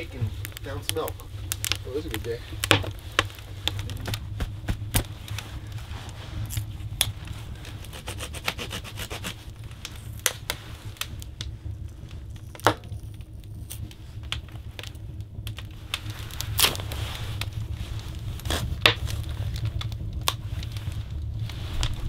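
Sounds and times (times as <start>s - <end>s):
knife scraping wood: 7.6s - 9.4s.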